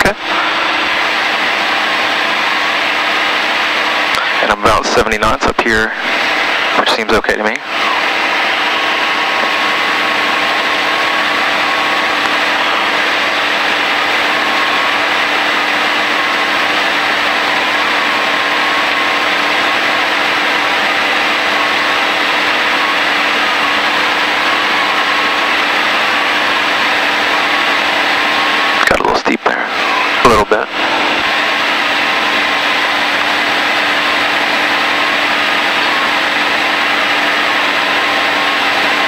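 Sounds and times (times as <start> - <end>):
propeller plane engine droning: 0.0 - 39.0.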